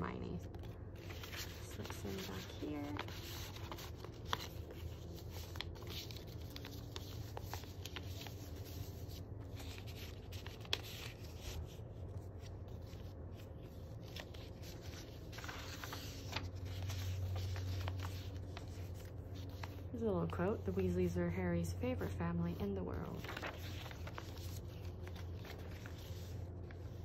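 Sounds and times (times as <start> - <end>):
low steady hum: 0.0 - 27.0
journal page turning: 0.5 - 21.0, 22.0 - 27.0
paper rustling and sliding: 1.0 - 21.2, 21.9 - 27.0.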